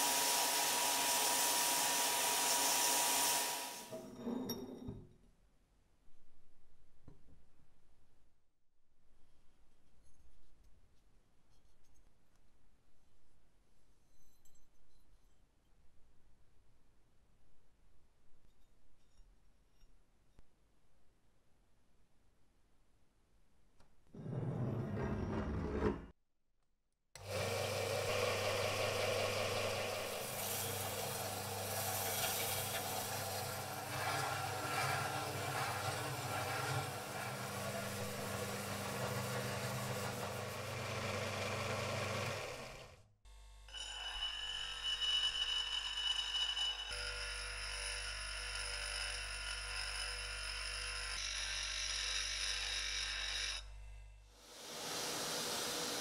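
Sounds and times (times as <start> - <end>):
bench grinder grinding metal: 27.2 - 43.0
sander motor hum: 27.2 - 43.0
sanding belt hiss: 28.7 - 40.6.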